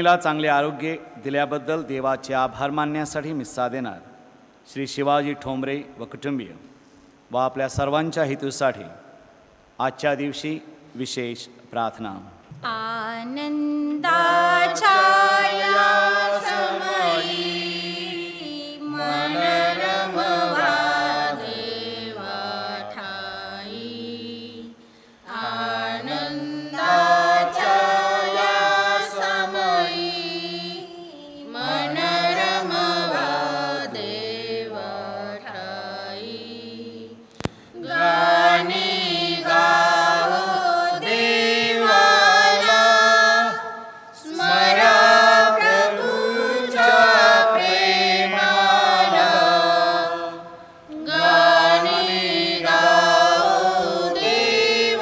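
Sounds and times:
people singing a hymn: 0:13.4 - 0:55.0.

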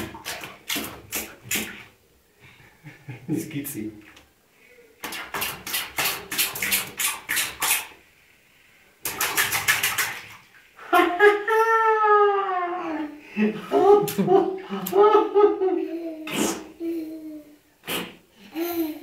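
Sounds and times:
hand splashing bath water: 0:00.0 - 0:02.0, 0:05.0 - 0:08.0, 0:09.0 - 0:10.7.

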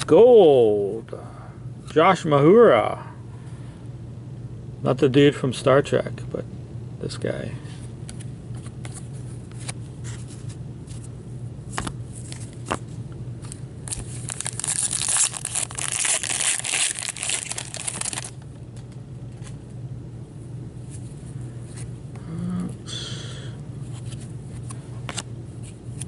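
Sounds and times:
low steady hum: 0:00.0 - 0:26.0
foil pack crackling: 0:13.8 - 0:18.4
cards clicking and sliding: 0:23.9 - 0:26.0.

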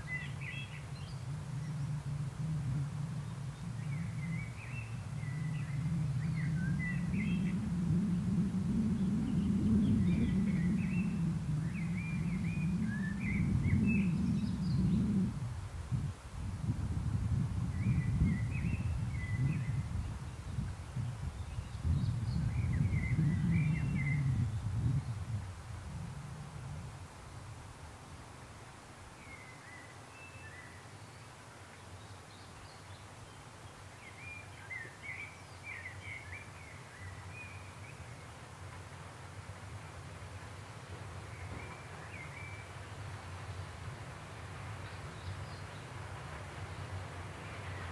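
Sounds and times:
songbirds chirping: 0:00.0 - 0:02.2, 0:03.0 - 0:07.7, 0:08.5 - 0:15.3, 0:17.2 - 0:25.4, 0:28.5 - 0:47.9
faint low rumble: 0:00.8 - 0:28.0.

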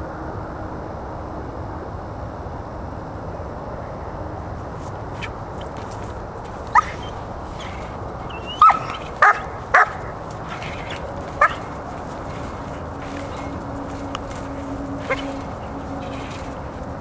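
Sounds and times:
puppy barking high-pitched: 0:06.7 - 0:12.5, 0:15.0 - 0:16.4.

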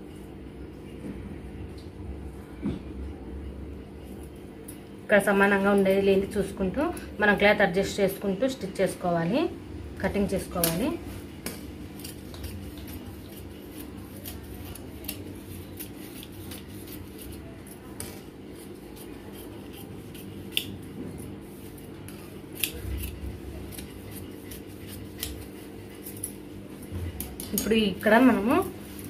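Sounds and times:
scissors snipping fabric: 0:10.6 - 0:20.8, 0:21.7 - 0:26.4.

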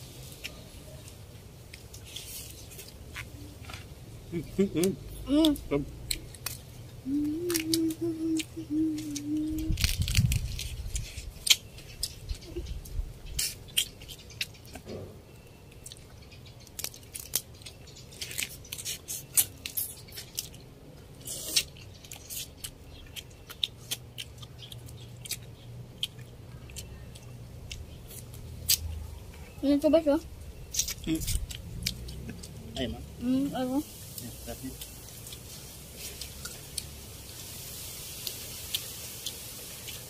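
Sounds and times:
chewing and smacking: 0:15.7 - 0:29.5, 0:34.8 - 0:36.9.

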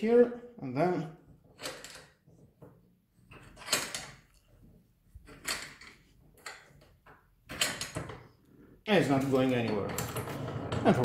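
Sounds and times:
metal parts scraping and rubbing: 0:05.2 - 0:06.8.

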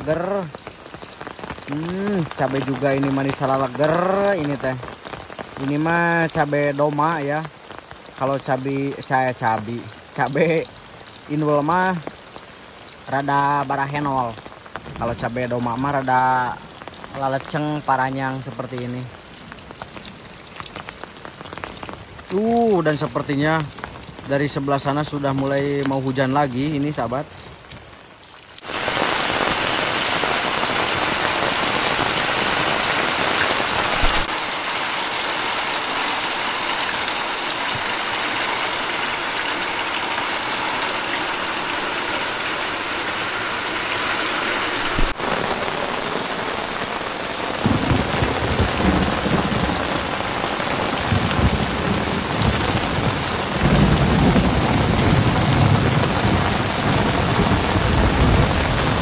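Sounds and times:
heavy rain on a metal roof: 0:00.0 - 0:59.0.

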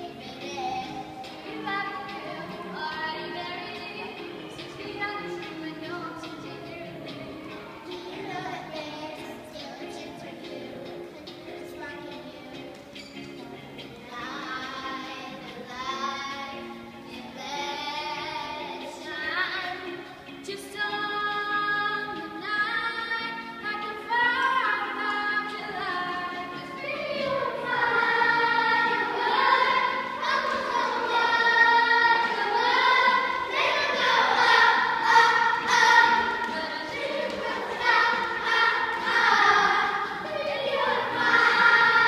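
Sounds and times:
children singing: 0:00.0 - 0:42.0.

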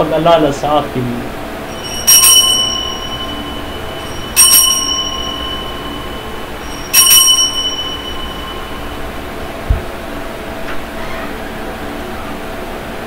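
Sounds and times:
altar bell ringing: 0:01.6 - 0:09.6.

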